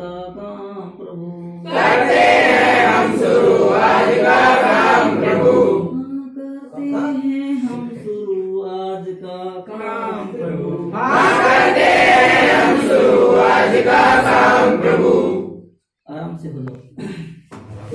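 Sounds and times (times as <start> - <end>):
children singing together: 1.7 - 6.0, 9.9 - 15.6.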